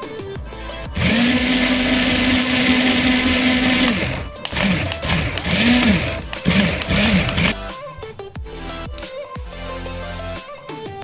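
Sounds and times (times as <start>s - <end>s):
toy car motors whining: 0.6s - 7.6s.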